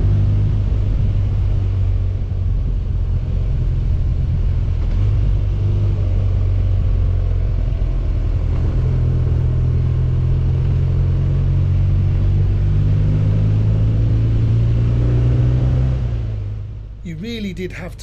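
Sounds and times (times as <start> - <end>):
motorcycle engine rumble: 0.0 - 18.0.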